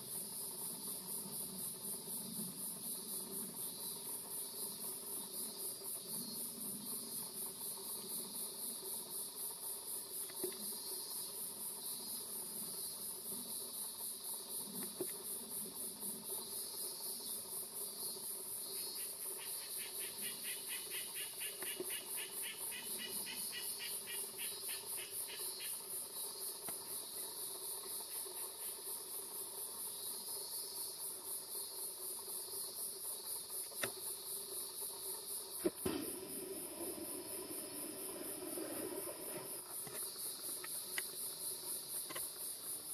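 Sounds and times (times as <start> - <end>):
insects buzzing high-pitched: 0.0 - 42.9
rapid pulsed insect trill: 0.0 - 42.9
faint ticks: 9.5 - 11.4, 14.6 - 16.3, 18.8 - 25.8, 26.5 - 27.0, 33.4 - 35.8, 39.1 - 42.8.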